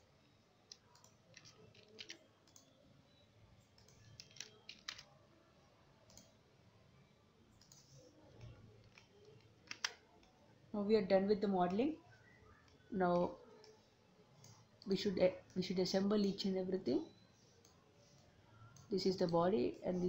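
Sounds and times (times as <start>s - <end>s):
low room hiss: 0.0s - 20.0s
computer mouse and keyboard clicks: 0.7s - 2.8s, 3.6s - 5.2s, 6.1s - 6.4s, 7.6s - 10.4s.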